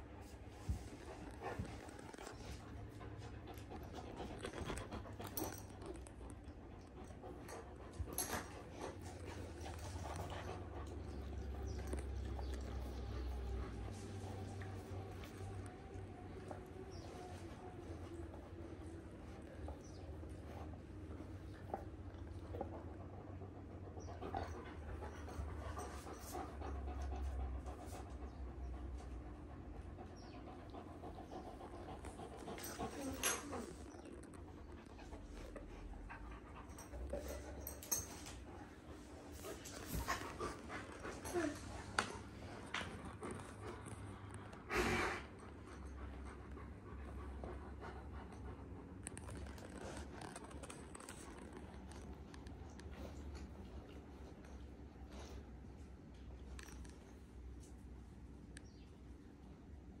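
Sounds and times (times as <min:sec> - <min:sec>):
dogs panting: 0:00.0 - 0:58.4
breathy puff: 0:44.7 - 0:45.3.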